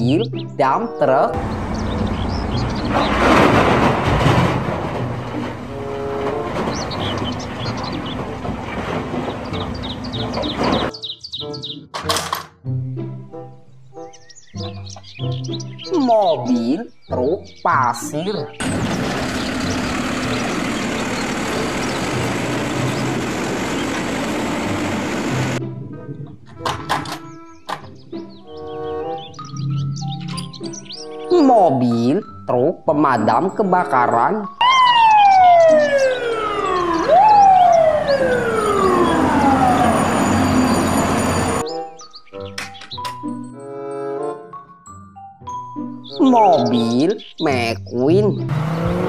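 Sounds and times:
diesel engine running: 1.4s - 10.9s, 18.6s - 25.6s, 35.5s - 41.6s, 48.3s - 49.0s
hydraulic arm lifting bin: 1.4s - 10.9s, 18.6s - 25.6s
street traffic noise: 1.4s - 11.0s, 18.4s - 25.6s, 34.7s - 41.8s, 48.3s - 49.0s
fire truck siren wailing: 18.6s - 25.6s, 34.6s - 41.7s.

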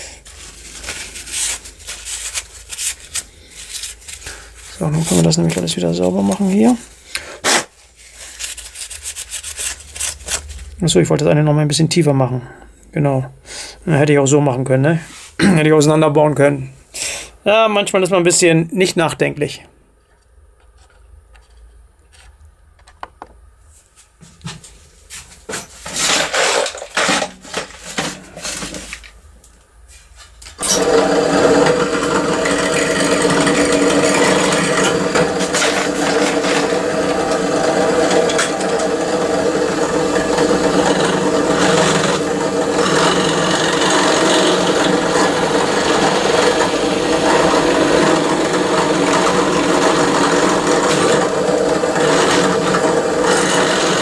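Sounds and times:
metal parts clattering: 25.8s - 29.1s, 34.7s - 36.8s
power tool grinding metal: 30.6s - 54.0s.

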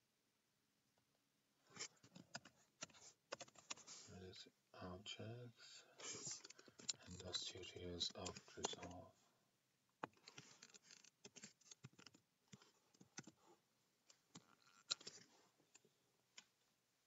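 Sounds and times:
faint keyboard typing: 1.7s - 4.2s, 6.0s - 9.0s, 10.0s - 16.5s.

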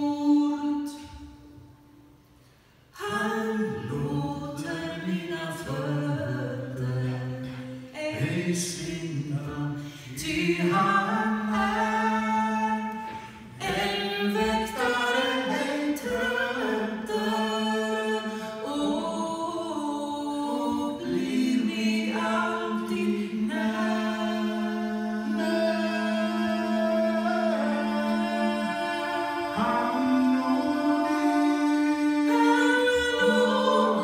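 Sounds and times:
people singing in harmony: 2.9s - 34.0s.

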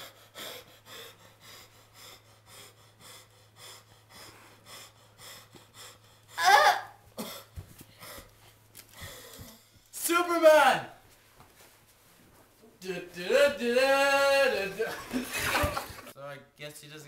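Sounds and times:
person panting rapidly: 0.0s - 6.4s, 7.1s - 9.9s.

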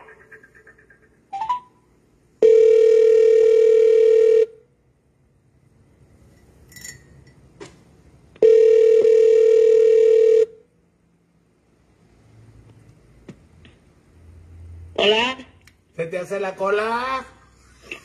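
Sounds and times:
telephone ringback tone: 2.4s - 4.6s, 8.4s - 10.6s.

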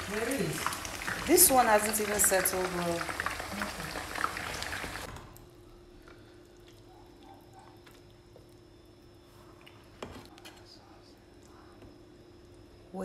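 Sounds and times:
sauce sizzling in a frying pan: 0.0s - 5.1s
soft wet drips: 6.1s - 9.9s.

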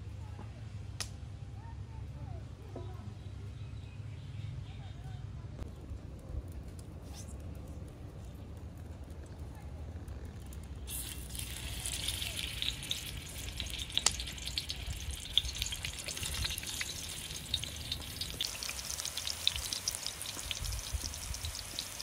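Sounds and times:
oil popping and crackling: 5.7s - 22.0s
eggplant sizzling in hot oil: 10.8s - 22.0s.

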